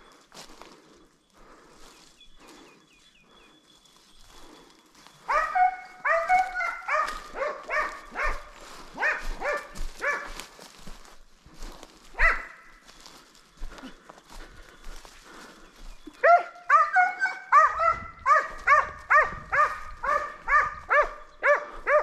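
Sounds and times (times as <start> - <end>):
hound barking: 5.2 - 10.5, 12.1 - 12.8, 16.2 - 22.0.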